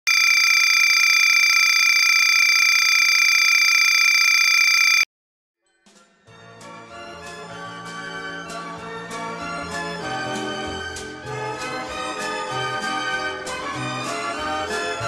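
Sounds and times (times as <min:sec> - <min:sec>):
buzzer-like electronic tone: 0:00.1 - 0:05.1.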